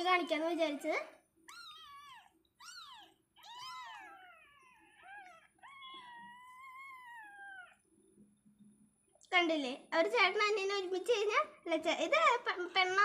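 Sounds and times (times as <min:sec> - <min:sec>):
kittens mewing: 0:01.5 - 0:07.9.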